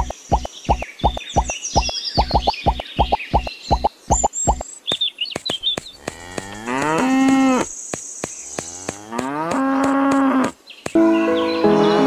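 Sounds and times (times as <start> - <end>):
cow mooing: 6.0 - 7.7, 8.6 - 10.5.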